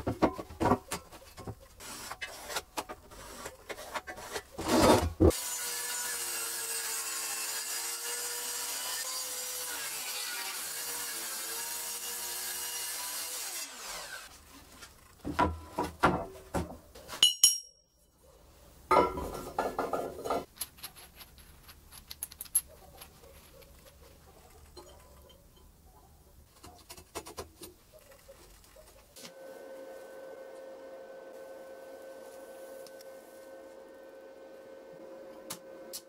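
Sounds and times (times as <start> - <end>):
circular saw cutting chipboard: 1.8 - 14.3
sharp metallic clink: 17.2 - 18.1.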